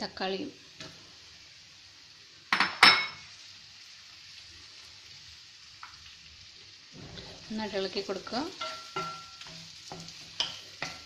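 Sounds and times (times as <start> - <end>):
faint food sizzle: 0.0 - 11.0
utensil clanking on frying pan: 8.5 - 11.0.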